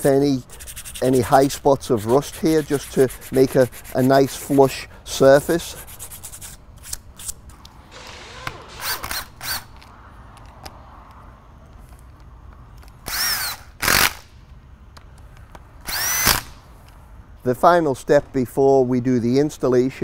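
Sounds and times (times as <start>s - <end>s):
cordless drill spinning wire brush: 13.1s - 14.1s, 15.9s - 16.4s.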